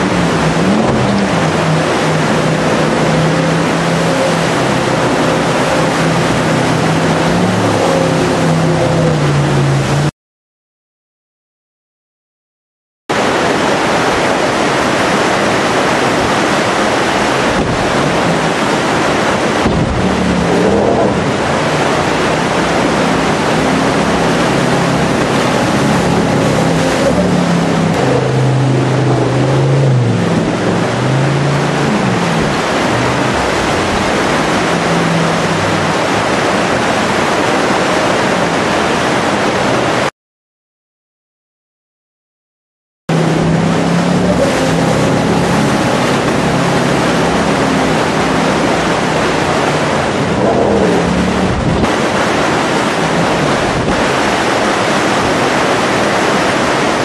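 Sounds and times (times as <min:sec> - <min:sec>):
boat engine rising and falling: 0:00.0 - 0:10.1, 0:13.1 - 0:40.1, 0:43.1 - 0:57.0
whitewater rapids rushing: 0:00.0 - 0:10.1, 0:13.1 - 0:40.1, 0:43.1 - 0:57.0.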